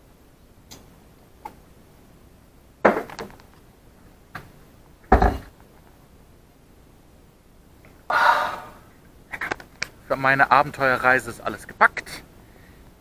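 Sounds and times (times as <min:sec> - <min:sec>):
glass knocking and clattering: 0:05.1 - 0:05.5.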